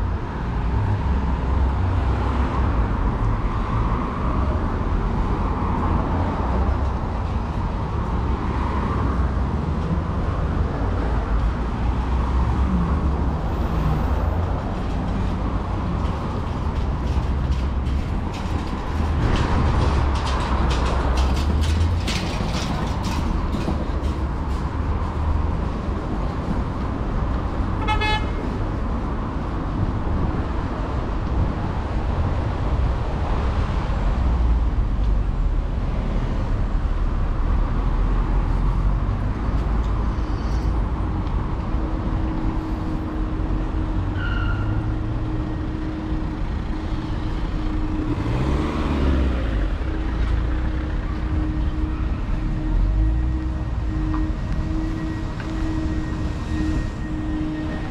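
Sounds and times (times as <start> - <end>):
road noise from passing vehicles: 0.0 - 57.9
car horn toot: 27.8 - 28.4.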